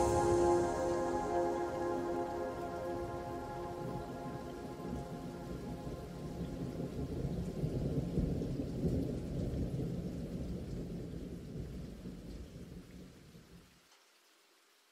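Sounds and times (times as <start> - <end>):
thunder rumbling: 0.0 - 10.5
steady rain: 0.0 - 14.9.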